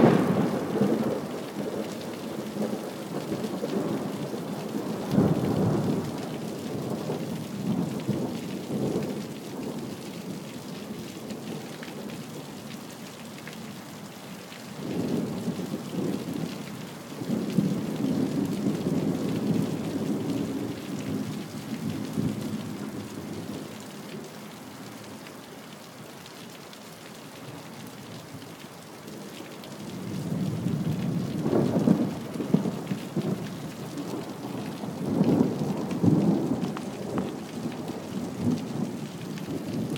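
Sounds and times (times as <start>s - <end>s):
thunder rumbling: 0.0s - 1.9s
rain hissing: 31.0s - 39.9s.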